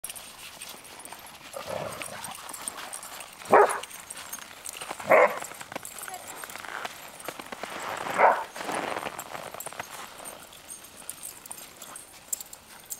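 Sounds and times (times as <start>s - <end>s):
dogs barking: 3.5s - 4.0s, 5.0s - 5.5s, 8.1s - 8.5s.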